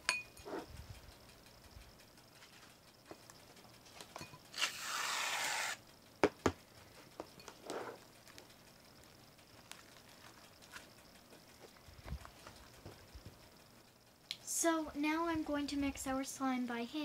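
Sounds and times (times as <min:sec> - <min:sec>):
aerosol can spraying foam: 0:04.6 - 0:05.8.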